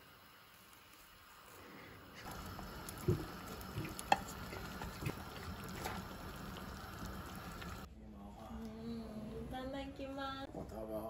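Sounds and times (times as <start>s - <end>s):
water pouring and trickling: 2.2s - 7.9s.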